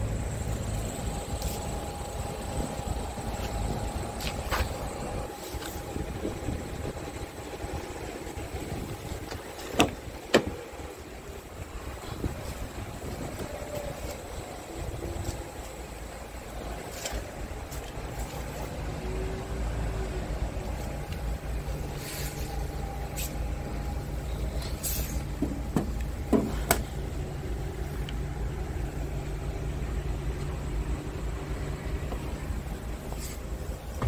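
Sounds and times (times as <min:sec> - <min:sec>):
vehicle rumble: 0:00.0 - 0:34.0.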